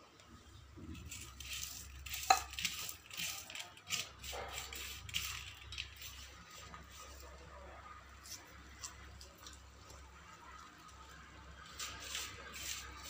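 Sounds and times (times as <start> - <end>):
kitchenware scraping and clattering: 0.9 - 7.1.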